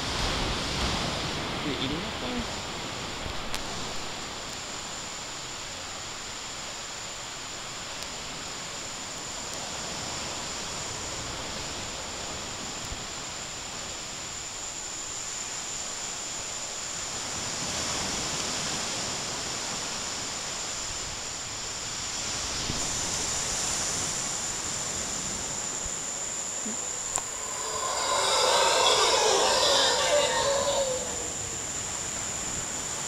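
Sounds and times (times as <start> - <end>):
high-pitched insect drone: 22.9 - 33.0
rushing hiss: 23.0 - 33.0.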